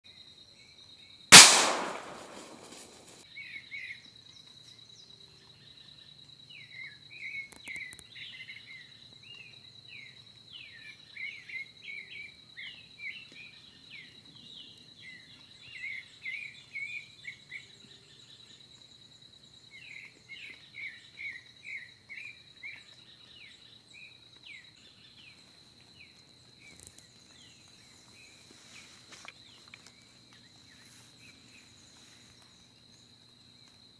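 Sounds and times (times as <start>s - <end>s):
gunshot: 1.3s - 3.2s.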